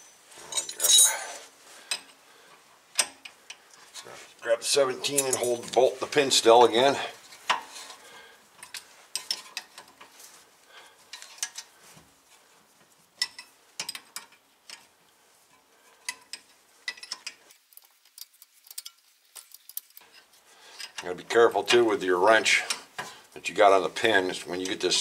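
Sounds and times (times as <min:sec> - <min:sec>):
wrenches clicking on metal: 0:15.5 - 0:21.2.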